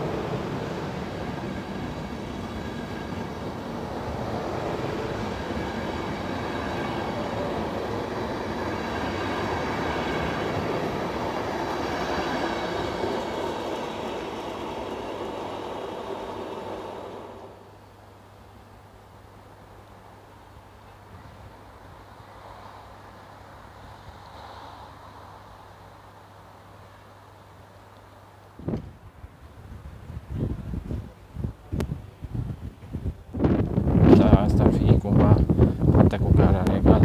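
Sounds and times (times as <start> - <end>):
train wheels rumbling on rails: 0.0 - 17.7, 30.0 - 37.0.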